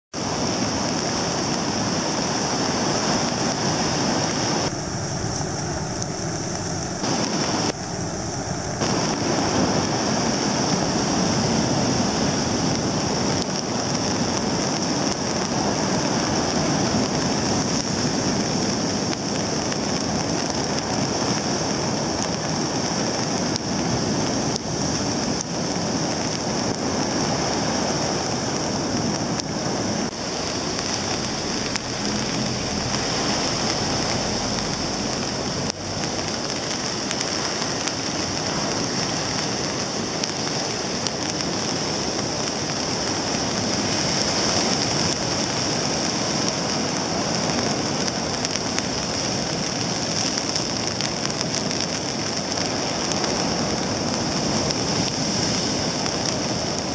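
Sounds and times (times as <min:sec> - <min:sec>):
rain hissing: 0:00.1 - 0:56.9
surf breaking on beach: 0:00.2 - 0:56.9.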